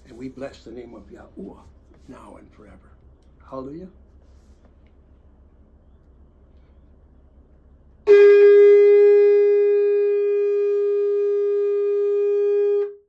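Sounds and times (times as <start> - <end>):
long blown note: 8.0 - 13.0.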